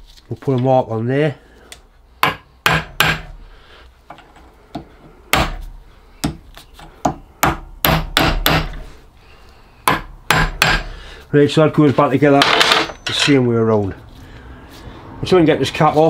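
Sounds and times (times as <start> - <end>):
hammer tapping metal punch: 2.2 - 3.3, 9.8 - 10.9.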